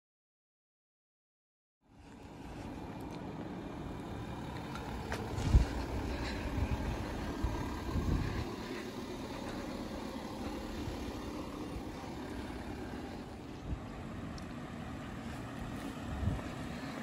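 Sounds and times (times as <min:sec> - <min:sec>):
outdoor background hum: 0:01.8 - 0:17.0
wind buffeting microphone: 0:05.1 - 0:08.8, 0:15.6 - 0:17.0.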